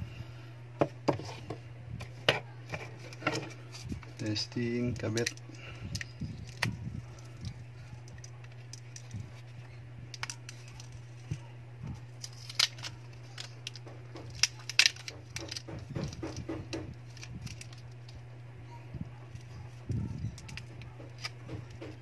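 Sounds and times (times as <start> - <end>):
steady low hum: 0.0 - 22.0
plastic phone parts clicking: 10.1 - 11.3, 12.2 - 18.2.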